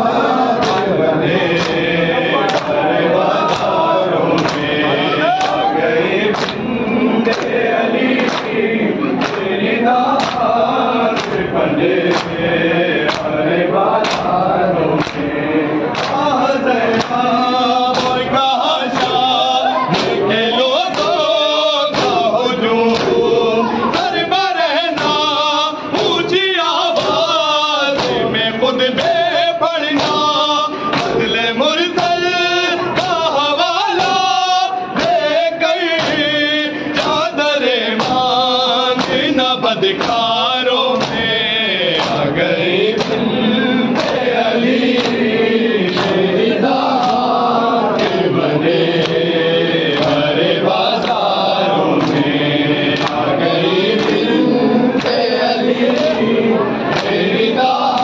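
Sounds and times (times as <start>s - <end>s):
men chanting over microphones: 0.0s - 58.0s
hand-slaps on chest: 0.6s - 1.9s, 3.4s - 4.8s, 6.3s - 7.6s, 8.2s - 8.6s, 9.2s - 12.4s, 13.0s - 15.3s, 15.9s - 17.2s, 17.8s - 19.3s, 19.9s - 20.2s, 20.9s - 21.3s, 21.9s - 22.3s, 22.9s - 23.3s, 27.9s - 28.2s, 29.9s - 31.3s, 35.9s - 36.3s, 38.0s - 38.3s, 38.9s - 39.3s, 39.9s - 41.3s, 41.9s - 42.3s, 42.9s - 43.2s, 44.0s - 44.3s, 44.9s - 45.3s, 45.9s - 46.3s, 46.9s - 48.3s, 49.0s - 49.2s, 49.9s - 53.3s, 53.9s - 55.2s, 56.9s - 57.2s.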